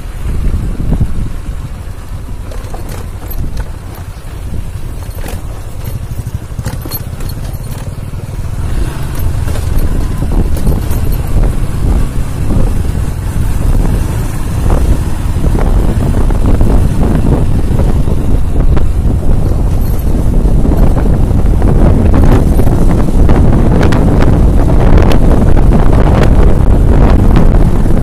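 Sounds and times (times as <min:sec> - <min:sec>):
motorcycle engine rumble: 0:00.0 - 0:28.0
knocks and rattles from bumps: 0:02.3 - 0:12.2, 0:18.8 - 0:21.2, 0:22.0 - 0:23.4.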